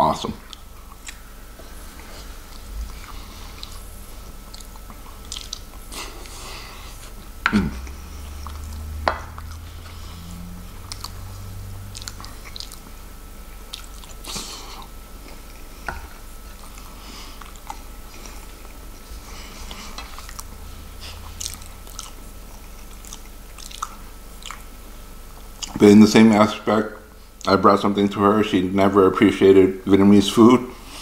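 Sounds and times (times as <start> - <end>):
wet chewing mouth clicks: 4.4 - 6.4, 10.9 - 11.2, 11.9 - 12.9, 13.7 - 15.4, 19.7 - 24.7.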